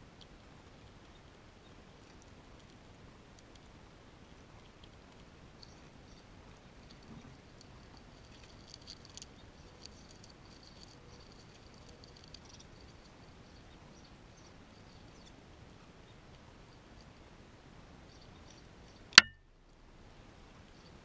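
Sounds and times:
squirrel chewing and gnawing: 0.0 - 19.4
faint high steady tone: 5.4 - 19.6.

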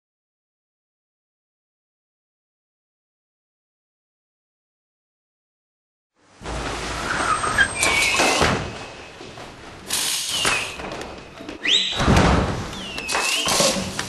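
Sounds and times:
firework whistles: 7.0 - 9.0, 9.9 - 10.8, 12.7 - 13.9.

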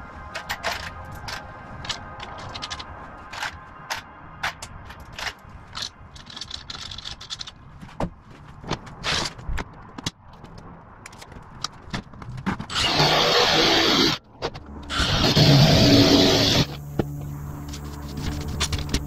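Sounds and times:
cordless drill boring through metal: 12.7 - 14.2, 14.9 - 16.8.

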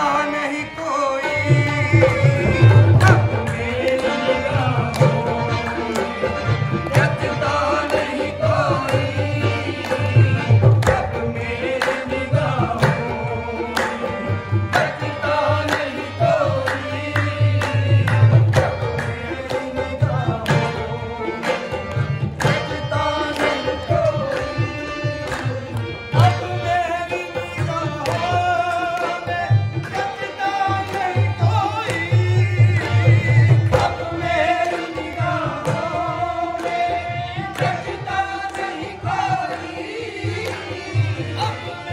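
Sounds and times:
harmonium: 0.0 - 41.9
man singing: 0.0 - 41.9
hand drum beat: 2.2 - 3.3.

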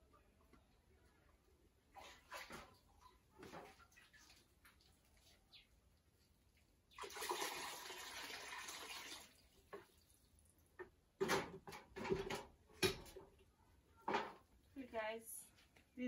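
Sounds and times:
water splashing into bucket: 6.9 - 10.0
bucket knocking and clattering: 10.8 - 13.2.

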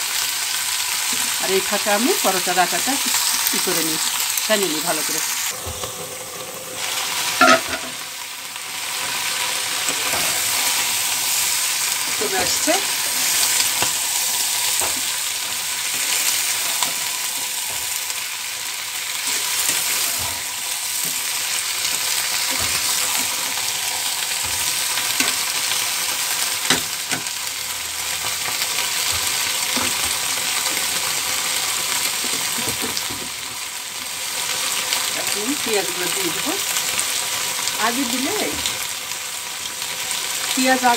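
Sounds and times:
beans sizzling in oil: 0.0 - 40.9
metal spatula scraping pan: 7.3 - 8.0.

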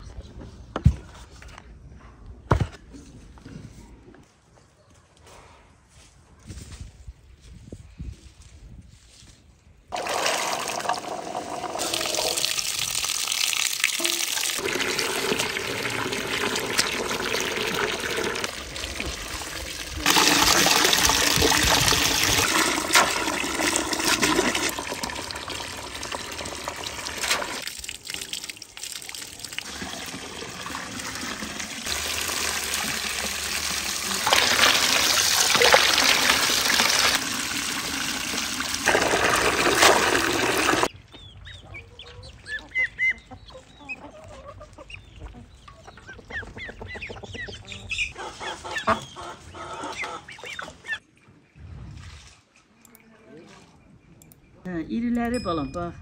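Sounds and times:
hose water splashing into metal basin: 9.9 - 40.9
water spilling over rim: 9.9 - 40.9.

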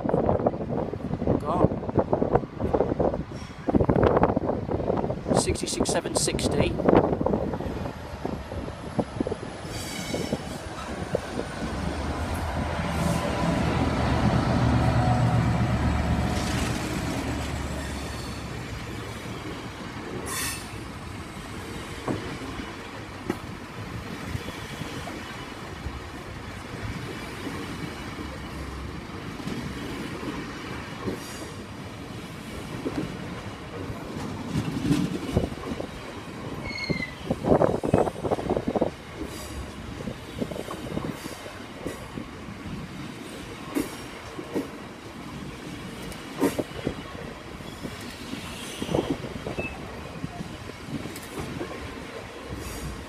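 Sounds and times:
train wheels clattering over rail joints: 32.6 - 38.5, 43.2 - 47.0
wheel squeal: 36.6 - 37.3.

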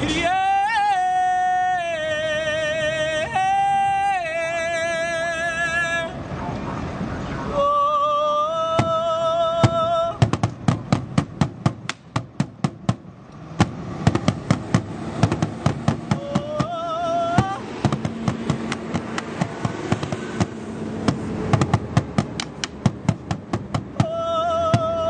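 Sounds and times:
fast drumming with sticks: 13.6 - 16.8, 17.4 - 24.1.

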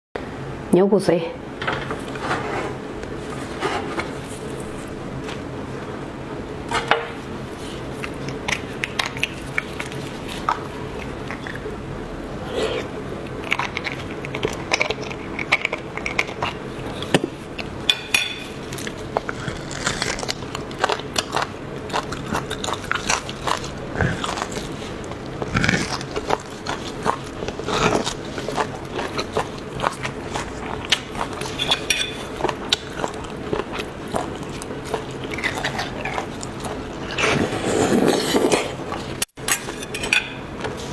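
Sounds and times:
low hum: 2.9 - 20.9, 21.7 - 31.4
chewing meat on bone: 7.5 - 39.6.

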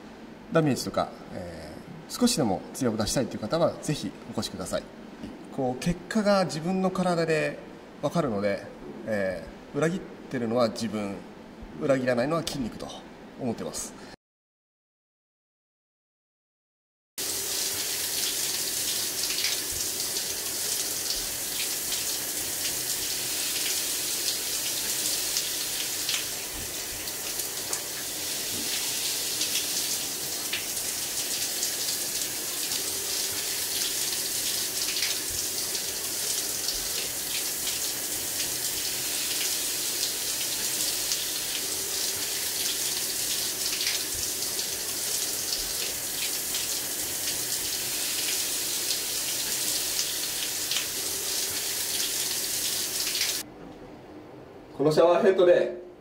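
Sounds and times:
shower spray hissing and splashing: 17.2 - 53.4.

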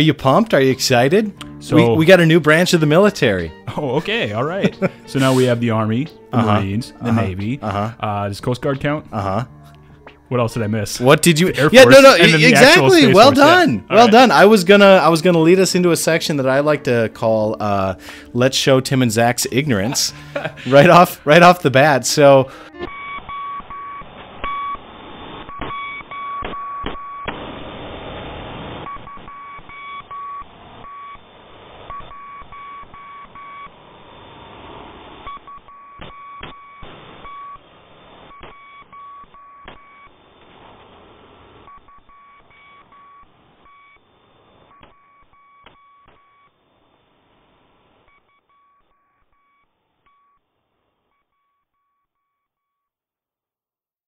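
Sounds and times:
electronic beeps: 11.3 - 14.8, 22.7 - 27.3, 28.8 - 33.8, 35.2 - 40.2, 41.6 - 46.6, 48.0 - 50.4
static hiss: 23.1 - 26.0, 26.8 - 29.4, 30.0 - 48.3.

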